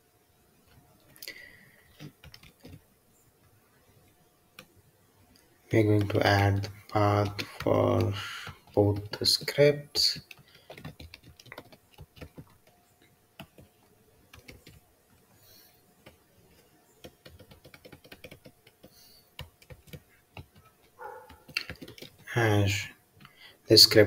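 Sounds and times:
keyboard typing: 0:02.0 - 0:02.8, 0:05.8 - 0:12.8, 0:13.4 - 0:14.8, 0:16.0 - 0:22.3.

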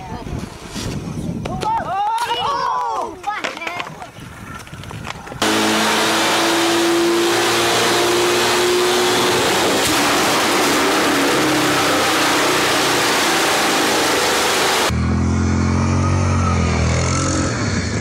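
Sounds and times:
car engine at high revs: 0:05.4 - 0:18.0.

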